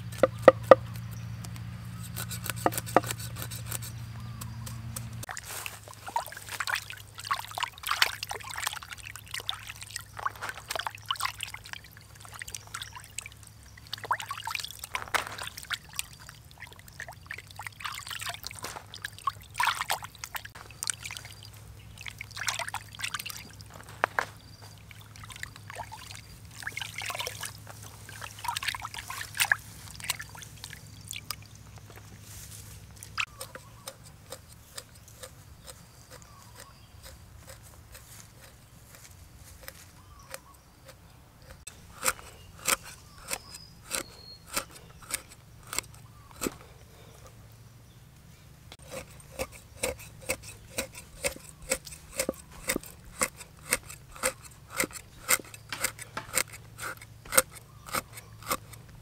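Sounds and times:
water dripping: 0:05.3 - 0:23.7, 0:24.7 - 0:31.5
water splashing in a basin: 0:05.3 - 0:23.8, 0:24.7 - 0:31.6.

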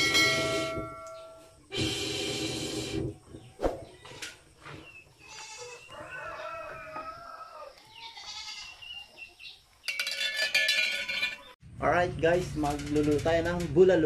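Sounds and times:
goat bleating: 0:05.2 - 0:05.8, 0:07.8 - 0:08.8.

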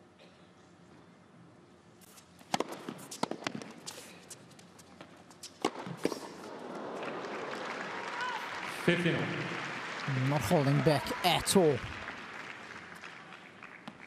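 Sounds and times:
tennis ball bouncing: 0:02.4 - 0:03.8, 0:05.0 - 0:06.5
racket striking tennis ball: 0:02.4 - 0:03.9, 0:05.5 - 0:06.5.

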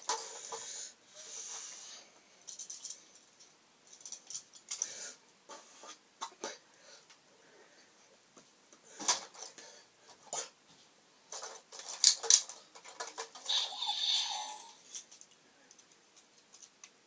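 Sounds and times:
plastic toy pieces clicking: 0:11.4 - 0:13.8.

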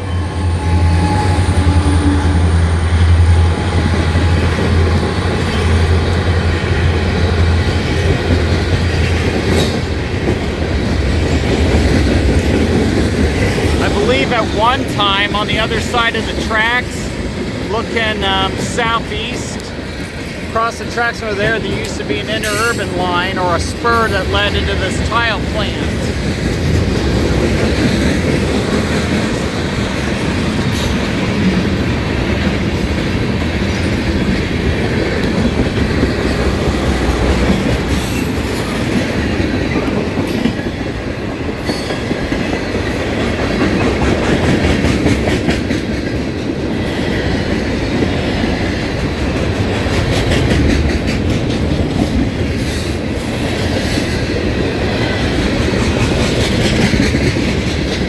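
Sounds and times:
rumble of wheels on rail: 0:00.0 - 0:58.0
wheels clacking over rail joints: 0:21.4 - 0:58.0.

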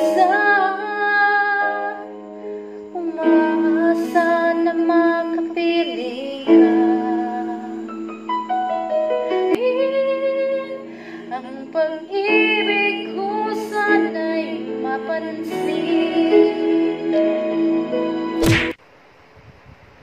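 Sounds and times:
instrumental backing music: 0:00.0 - 0:18.7
woman singing long notes: 0:02.9 - 0:07.9.

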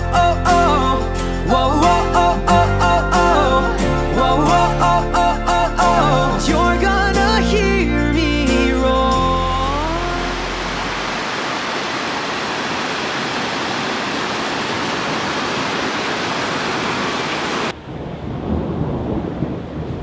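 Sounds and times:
pop song singing: 0:00.0 - 0:11.0
heavy rain pouring: 0:09.1 - 0:19.8.

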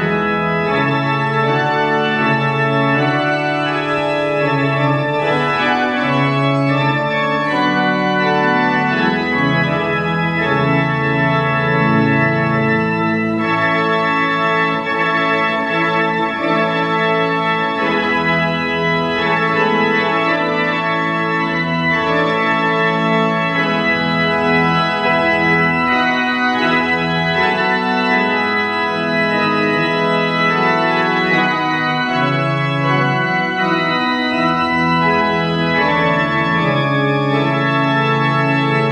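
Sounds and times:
church organ playing chords: 0:00.0 - 0:38.9.

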